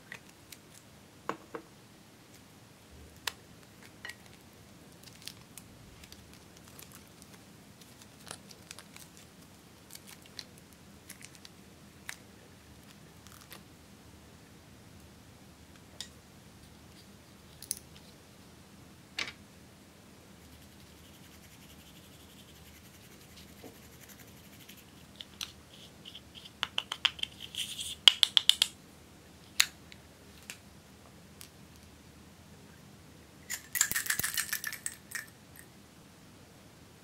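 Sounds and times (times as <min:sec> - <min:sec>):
items clicking against glass bowl: 0:33.5 - 0:35.3.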